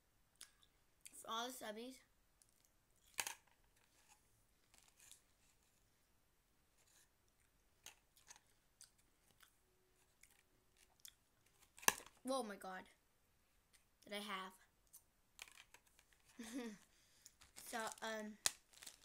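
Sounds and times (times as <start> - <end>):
faint chewing: 2.4 - 3.2, 6.8 - 11.7.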